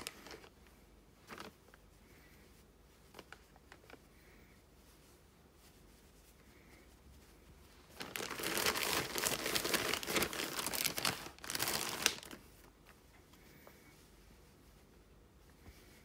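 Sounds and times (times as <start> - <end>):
plastic satchel crinkling: 0.0 - 0.5, 1.3 - 1.5, 7.9 - 12.4.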